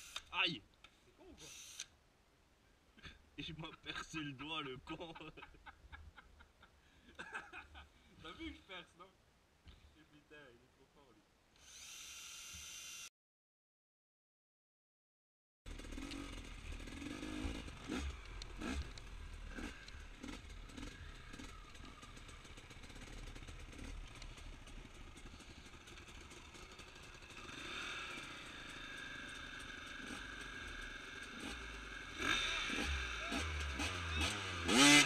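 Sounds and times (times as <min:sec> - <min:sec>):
dirt bike engine at low revs: 0:15.7 - 0:35.0.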